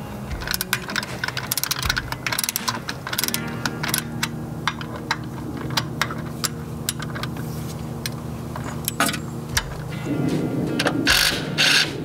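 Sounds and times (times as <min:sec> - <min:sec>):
steady low hum: 0:00.0 - 0:12.0
ratchet wrench clicking: 0:00.3 - 0:07.4.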